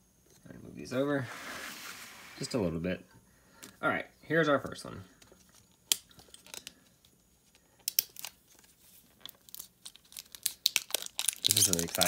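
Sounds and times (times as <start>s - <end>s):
plastic wrap crinkling and tearing: 7.8s - 12.0s.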